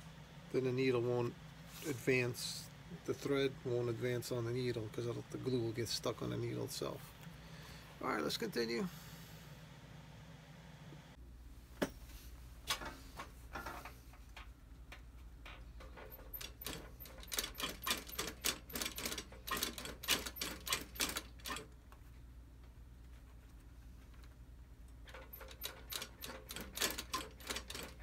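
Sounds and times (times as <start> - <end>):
sewing machine needle strokes: 16.1 - 21.7, 25.2 - 28.0
sewing machine motor hum: 25.2 - 28.0.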